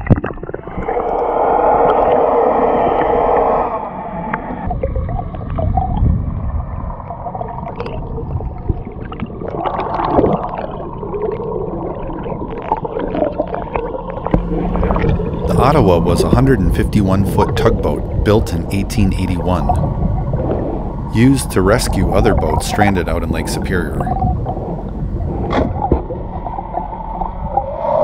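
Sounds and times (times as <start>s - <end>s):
low rumbling: 0.0s - 8.6s, 14.3s - 28.0s
water rushing and gurgling underwater: 0.0s - 28.0s.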